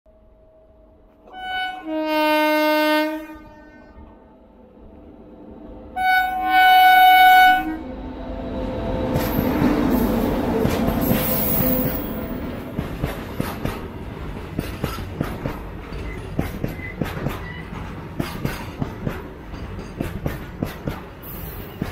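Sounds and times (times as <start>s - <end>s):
locomotive horn blast: 1.2s - 4.2s, 5.9s - 8.0s
locomotive rumble passing: 3.9s - 17.0s.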